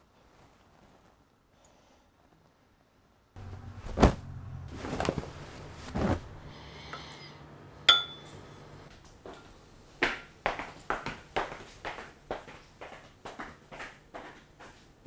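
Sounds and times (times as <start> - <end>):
low steady hum: 3.4 - 10.0
spoon knocking in ceramic bowl: 7.9 - 8.3
spoon clinking on ceramic: 7.9 - 8.4.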